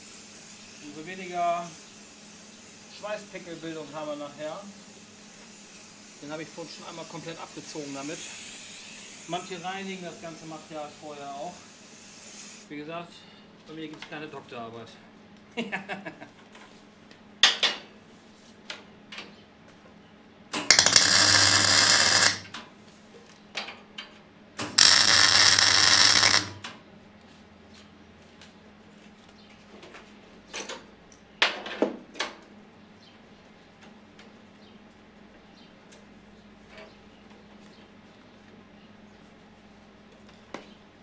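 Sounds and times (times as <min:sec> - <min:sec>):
welding arc crackling: 0:20.6 - 0:22.6, 0:24.6 - 0:26.7.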